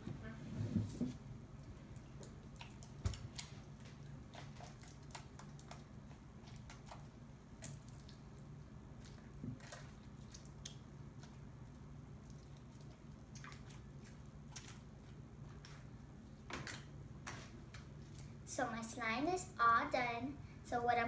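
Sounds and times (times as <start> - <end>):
low steady hum: 0.0 - 21.0
slime squelching in hands: 1.5 - 18.4.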